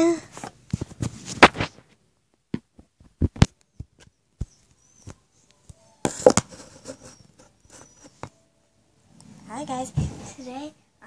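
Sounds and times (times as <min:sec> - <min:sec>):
hand rubbing over phone: 0:06.1 - 0:08.3.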